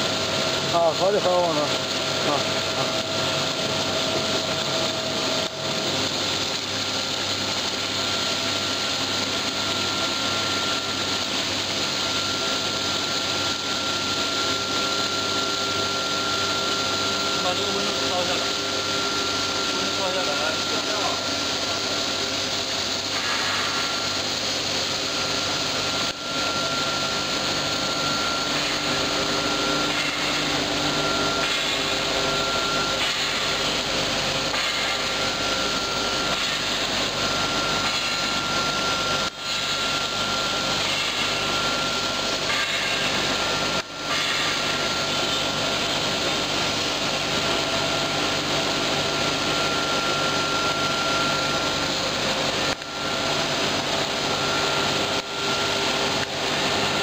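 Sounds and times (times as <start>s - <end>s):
steady machine whine: 0.0s - 57.0s
water spraying: 0.0s - 57.0s
machinery noise: 16.3s - 57.0s.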